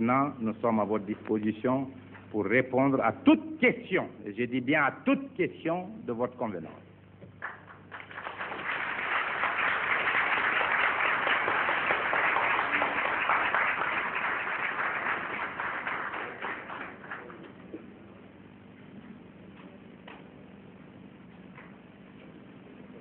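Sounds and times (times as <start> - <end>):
audience applauding: 7.4 - 17.6.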